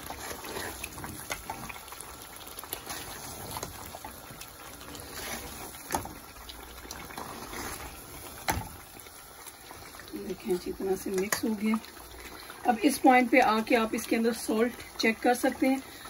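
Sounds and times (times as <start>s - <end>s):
sauce sizzling and squelching: 0.0s - 16.0s.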